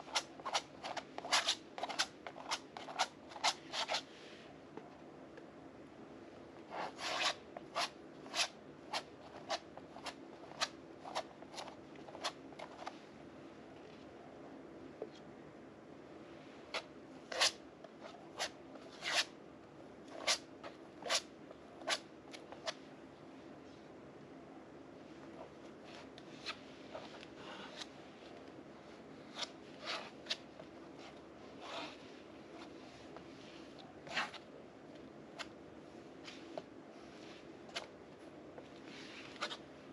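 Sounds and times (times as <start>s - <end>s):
palette knife scraping canvas: 0.0s - 4.0s, 6.7s - 12.4s, 17.3s - 17.6s, 18.4s - 19.3s, 20.1s - 20.4s, 21.0s - 22.0s, 31.6s - 34.4s
faint room hum: 0.0s - 39.9s.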